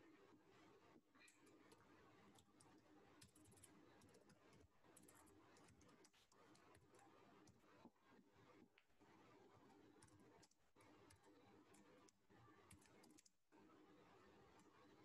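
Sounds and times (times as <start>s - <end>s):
keyboard typing clicks: 1.4s - 7.6s, 12.6s - 13.3s.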